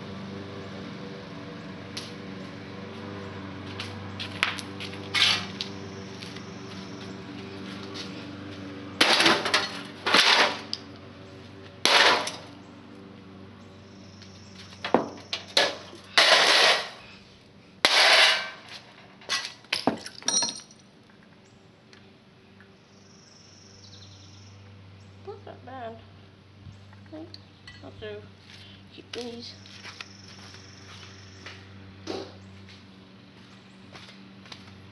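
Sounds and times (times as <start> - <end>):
sheet metal crashing on concrete: 9.0 - 10.7, 11.9 - 12.4, 15.6 - 17.0, 17.9 - 18.7.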